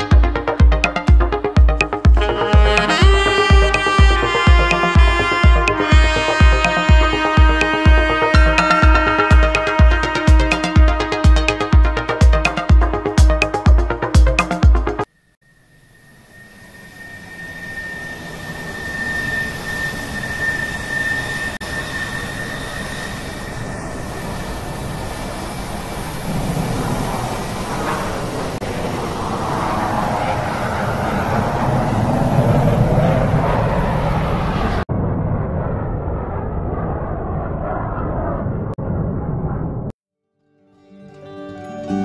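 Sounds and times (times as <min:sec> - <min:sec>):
high steady whine: 0:00.0 - 0:38.4
jet engines roaring: 0:15.8 - 0:39.9.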